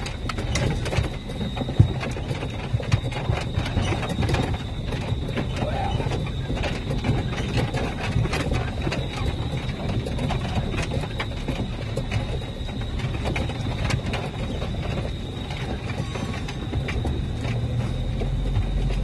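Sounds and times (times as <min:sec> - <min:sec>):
knocks and rattles over ruts: 0:00.0 - 0:19.0
vehicle engine and tyres rumbling: 0:00.0 - 0:19.0.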